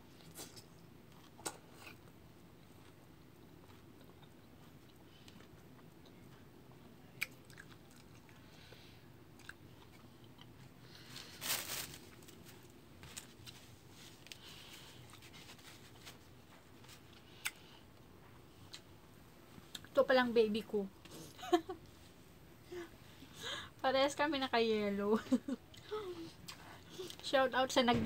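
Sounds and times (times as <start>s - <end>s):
chewing crisp fruit: 0.1s - 11.1s.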